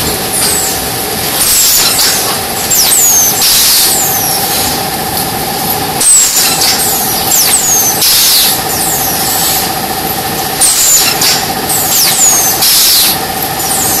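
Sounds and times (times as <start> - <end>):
cutting machine humming: 0.0 - 14.0.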